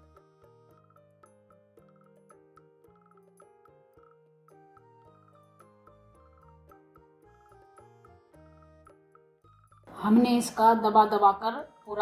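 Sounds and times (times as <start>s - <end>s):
light melodic background music: 0.0s - 12.0s.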